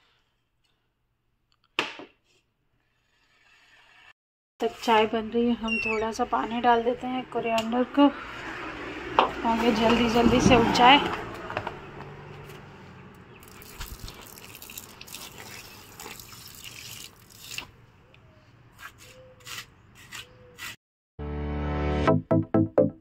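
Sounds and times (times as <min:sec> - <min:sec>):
water splashing on plants: 0:13.4 - 0:17.8.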